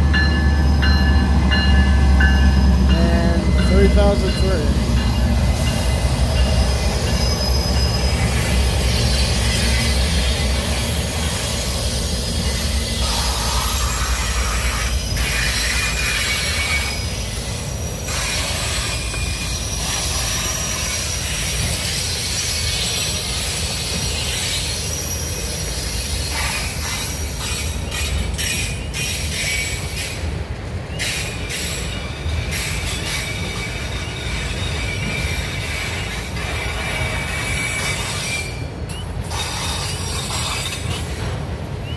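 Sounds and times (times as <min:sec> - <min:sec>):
diesel locomotive rumble: 0:00.0 - 0:41.9
train wheels on rails: 0:00.0 - 0:41.9
high-pitched wheel squeal: 0:06.7 - 0:10.6.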